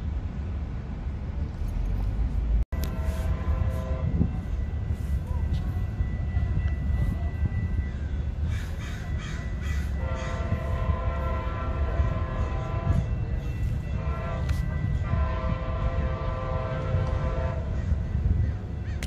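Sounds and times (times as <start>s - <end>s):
low rumble of train: 0.0s - 19.0s
locomotive air horn blasts: 2.7s - 7.3s, 9.8s - 17.8s
crows cawing: 8.5s - 10.4s.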